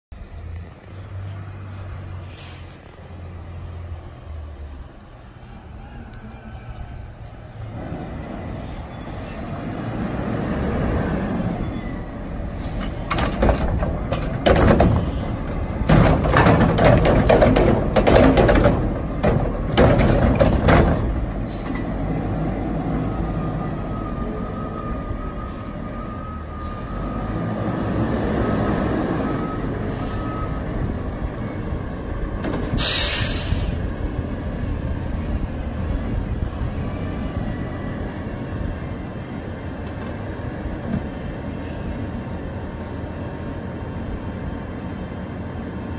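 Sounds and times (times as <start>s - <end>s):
air brake hiss: 2.3s - 2.7s, 8.5s - 9.5s, 21.4s - 21.8s, 32.6s - 33.8s
diesel engine revving: 9.2s - 11.6s, 12.4s - 39.2s
cart clattering and banging: 12.7s - 21.9s.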